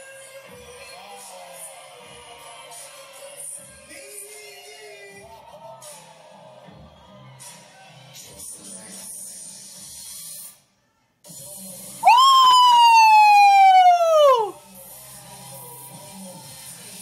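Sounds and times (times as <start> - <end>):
woman's high-pitched excited cry: 12.0 - 14.5
faint dance music: 12.0 - 14.6.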